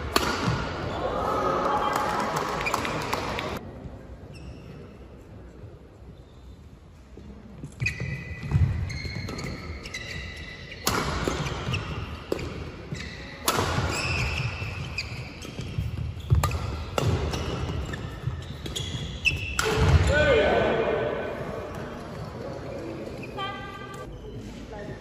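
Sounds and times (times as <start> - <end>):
rackets hitting shuttlecock: 0.0 - 0.9, 10.8 - 12.7, 13.4 - 20.1
shoes squeaking on court: 4.3 - 5.0, 7.6 - 20.0, 21.6 - 24.5.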